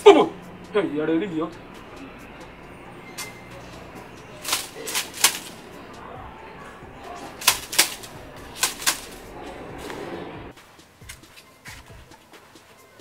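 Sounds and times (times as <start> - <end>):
palm-frond strips swishing: 3.2 - 6.1, 7.0 - 12.2.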